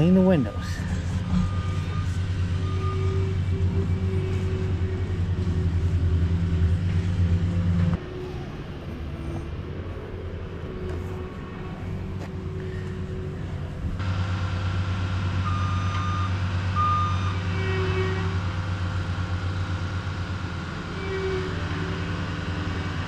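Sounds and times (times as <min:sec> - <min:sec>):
loader engine running: 0:00.0 - 0:23.0
reversing alarm beeps: 0:00.4 - 0:05.5, 0:15.4 - 0:17.4.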